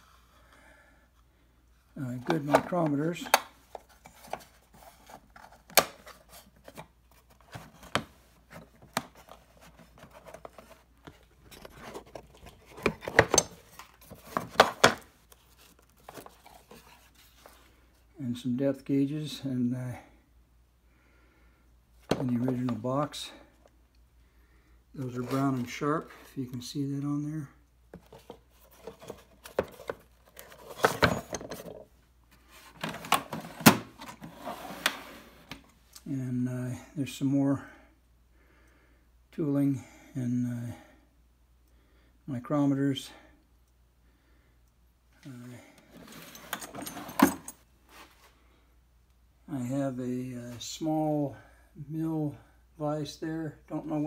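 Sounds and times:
tools clicking and knocking in drawer: 0:11.5 - 0:15.0, 0:28.8 - 0:31.8, 0:46.0 - 0:47.6
tools clicking and knocking: 0:12.7 - 0:15.0.

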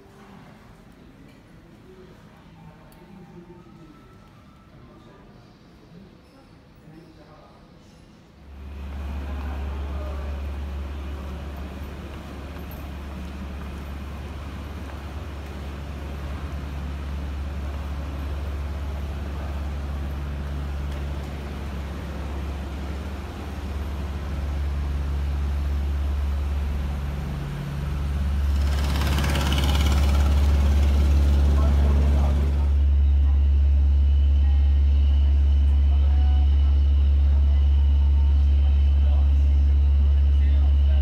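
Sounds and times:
bus engine idling: 0:08.5 - 0:41.0.

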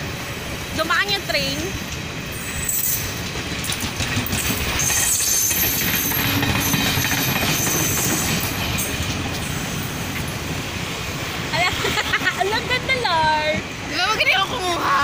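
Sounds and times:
train carriages rumbling on track: 0:00.0 - 0:15.0
wheels squealing: 0:02.3 - 0:10.2.

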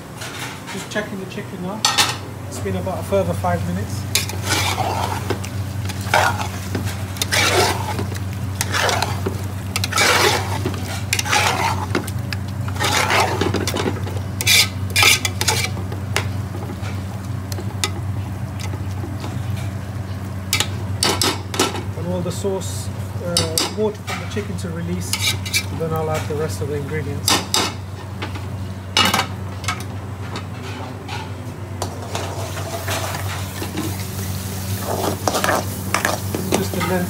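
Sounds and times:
steady low hum: 0:00.0 - 0:37.0
metal spatula scraping a pot: 0:04.1 - 0:12.1, 0:12.7 - 0:15.8, 0:25.0 - 0:25.7.

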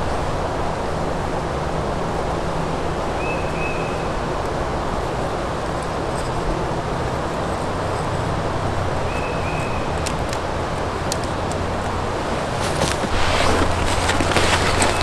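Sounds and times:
rushing outdoor background noise: 0:00.0 - 0:15.0.

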